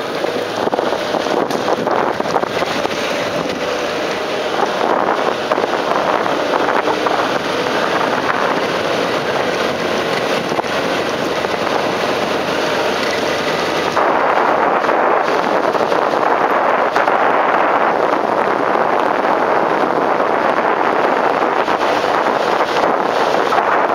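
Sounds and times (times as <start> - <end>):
car rolling on sandy track: 0.0 - 23.9
wind buffeting microphone: 0.0 - 23.9.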